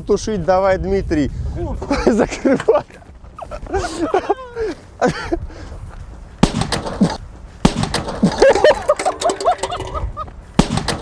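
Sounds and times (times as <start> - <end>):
clatter of breaking metal and plastic: 7.9 - 10.1.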